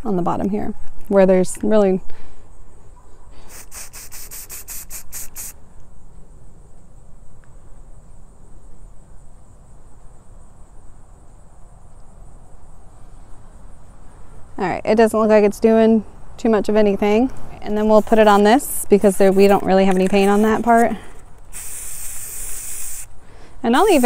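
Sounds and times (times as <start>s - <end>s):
spray can hissing bursts: 3.5s - 5.6s, 19.1s - 20.8s, 21.5s - 23.1s, 23.8s - 24.0s.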